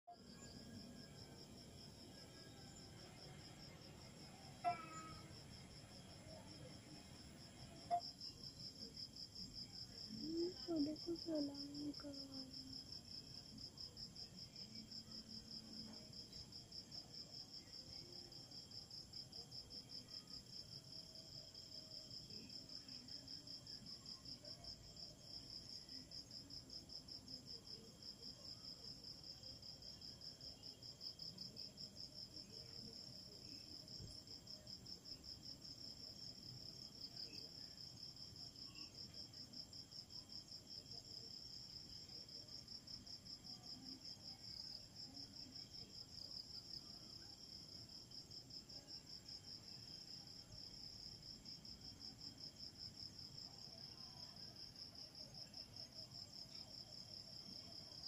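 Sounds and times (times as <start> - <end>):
crickets trilling: 0.2 - 6.6.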